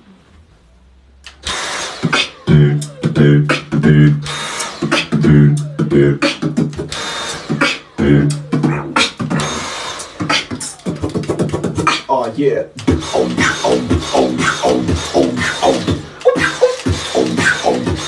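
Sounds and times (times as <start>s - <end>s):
beatboxing bass notes and clicks: 1.2s - 18.0s
vacuum cleaner motor whirring: 1.3s - 3.0s, 4.2s - 5.1s, 6.8s - 8.0s, 9.3s - 11.1s, 12.8s - 18.0s.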